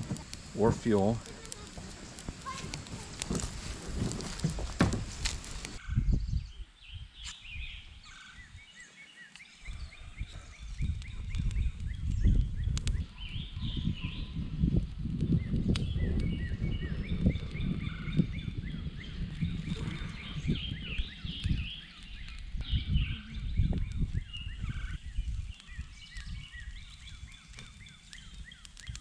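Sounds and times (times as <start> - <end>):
dry sticks rustling and knocking: 0.0 - 5.8, 24.8 - 29.0
birds chirping: 0.0 - 14.5, 15.3 - 29.0.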